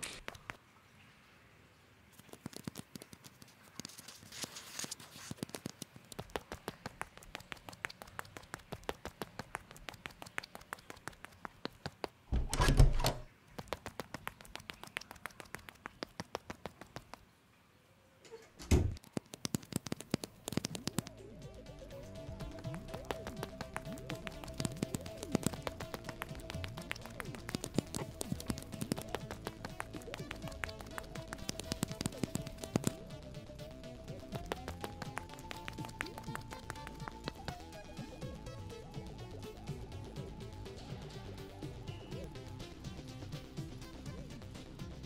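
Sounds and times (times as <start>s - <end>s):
hard shoes tapping on concrete: 6.2s - 12.3s, 22.3s - 33.0s, 33.6s - 37.6s.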